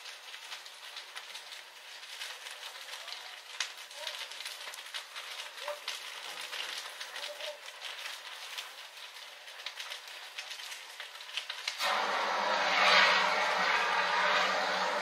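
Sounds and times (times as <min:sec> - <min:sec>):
fire crackling and popping: 0:00.0 - 0:15.0
fire extinguisher hissing: 0:11.8 - 0:15.0.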